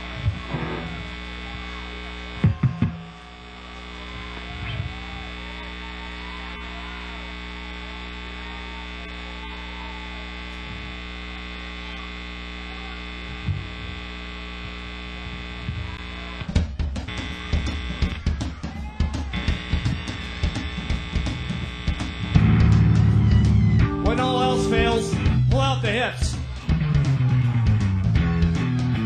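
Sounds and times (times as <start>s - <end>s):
faint crowd voices: 0.0s - 14.1s, 15.5s - 21.2s, 23.0s - 29.0s
amplifier electrical hum: 0.0s - 16.5s, 19.4s - 24.1s.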